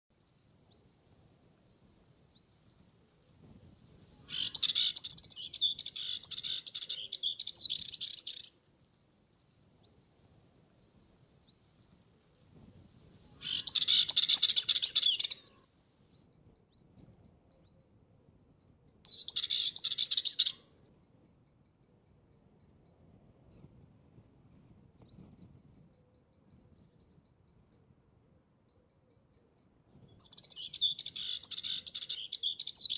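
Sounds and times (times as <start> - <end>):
bird scratchy warbling: 4.3 - 7.2, 13.4 - 15.4.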